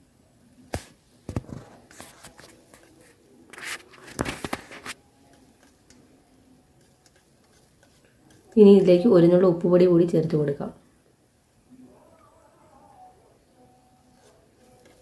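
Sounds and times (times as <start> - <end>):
spoon scraping frying pan: 2.6 - 9.1, 14.0 - 15.0.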